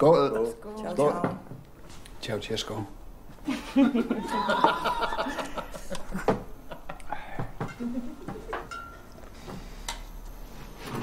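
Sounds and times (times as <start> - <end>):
glasses and bottles clinking: 8.5 - 9.1.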